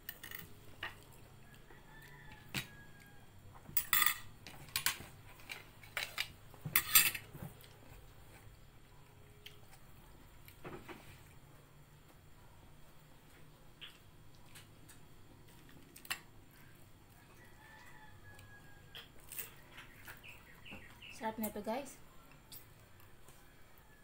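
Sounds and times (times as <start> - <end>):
spoons clinking on ceramic plates: 3.8 - 5.0, 6.8 - 7.3.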